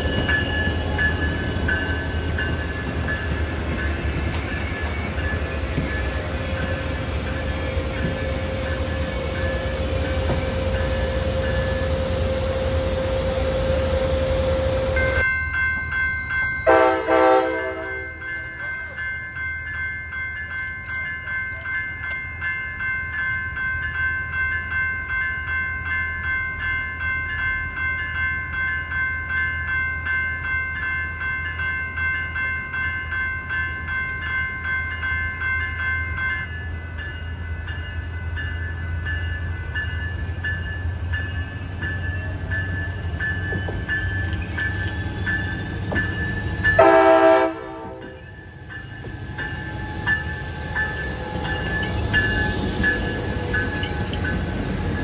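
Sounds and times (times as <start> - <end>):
train engine rumble: 0.0 - 16.0, 31.5 - 55.0
bell ringing: 0.0 - 55.0
locomotive horn blast: 16.7 - 18.2, 46.8 - 48.2
faint high wheel squeal: 48.0 - 55.0.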